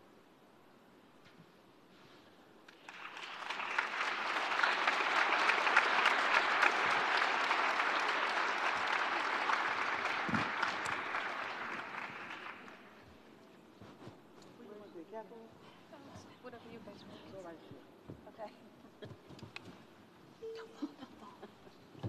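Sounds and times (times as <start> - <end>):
audience applauding: 2.7 - 13.0.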